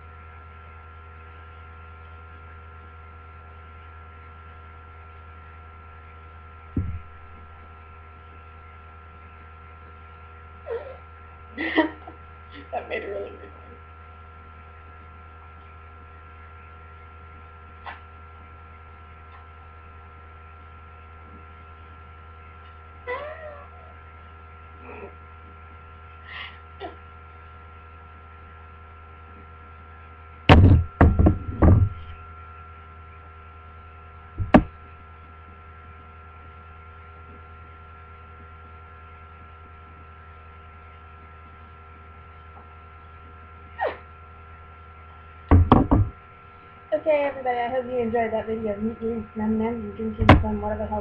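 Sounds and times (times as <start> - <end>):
electrical mains hum: 0.0 - 51.0
sharp double knock: 6.8 - 7.3, 30.5 - 32.0, 34.4 - 34.7, 45.5 - 46.2.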